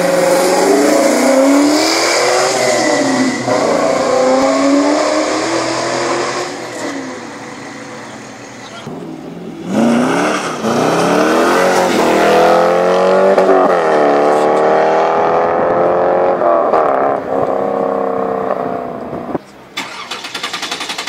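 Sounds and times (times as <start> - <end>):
car engine accelerating: 0.0 - 21.0.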